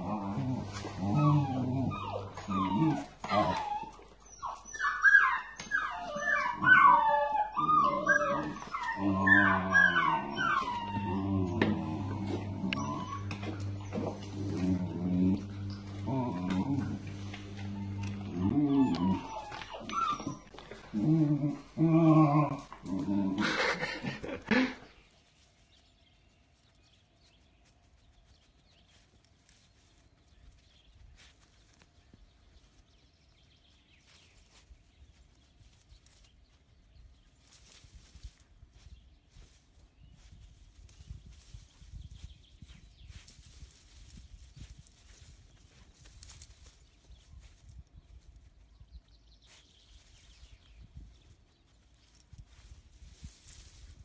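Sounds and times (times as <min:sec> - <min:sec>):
puppies whining and yelping: 0:00.5 - 0:23.4
faint steady hum: 0:10.7 - 0:21.9
steady low hum: 0:11.4 - 0:54.0
dry grass rustling and crackling: 0:24.9 - 0:54.0.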